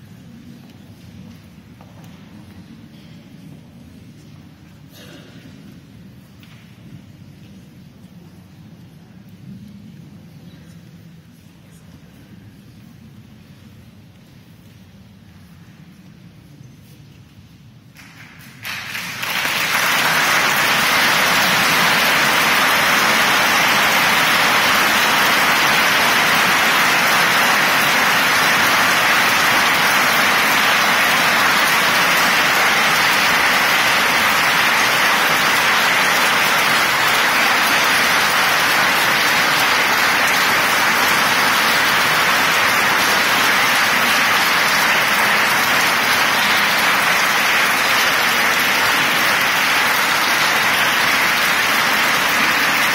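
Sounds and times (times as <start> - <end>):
large audience applauding: 17.9 - 52.9.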